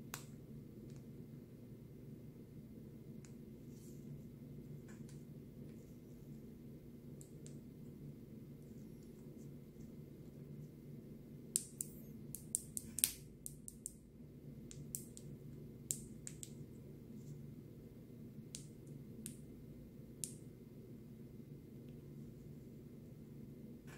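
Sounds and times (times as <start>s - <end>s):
steady low hum: 0.0s - 23.9s.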